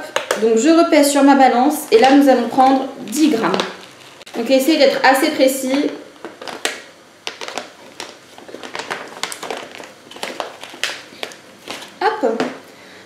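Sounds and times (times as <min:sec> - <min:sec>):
plastic bag crinkling: 0:01.9 - 0:12.7.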